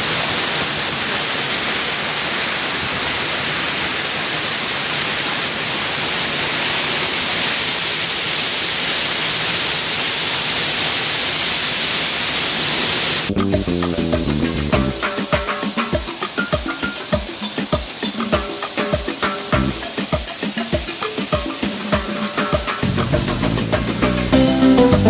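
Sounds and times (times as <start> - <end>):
waterfall rushing onto rocks: 0.0 - 25.0
music: 13.3 - 25.0.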